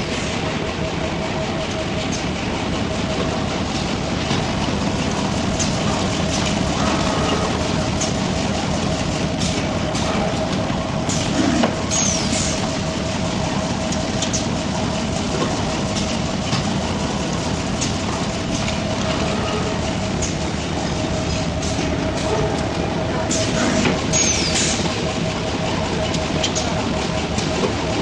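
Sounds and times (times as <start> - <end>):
brief squeak: 24.2 - 24.7.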